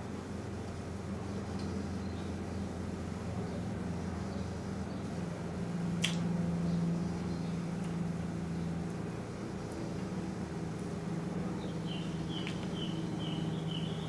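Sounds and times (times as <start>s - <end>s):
steady low hum: 0.0s - 14.0s
sharp click: 6.0s - 6.3s.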